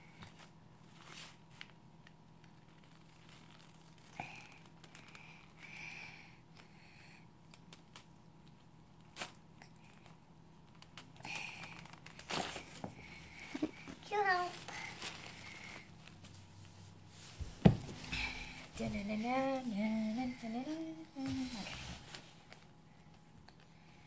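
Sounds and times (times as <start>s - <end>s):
toy packaging rustling: 10.7s - 16.2s.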